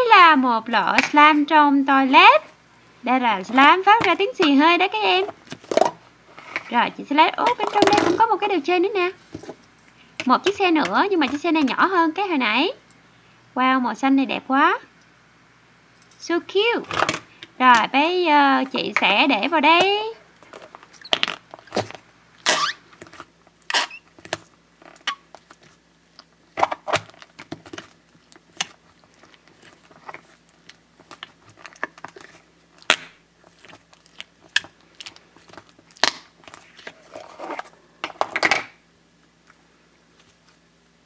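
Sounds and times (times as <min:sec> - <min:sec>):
putty squelching fart noises: 0:21.0 - 0:22.8, 0:23.6 - 0:24.2.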